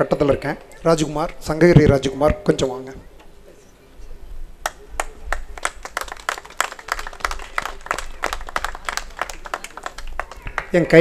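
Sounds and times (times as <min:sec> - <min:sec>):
audience applause: 0:04.6 - 0:11.0.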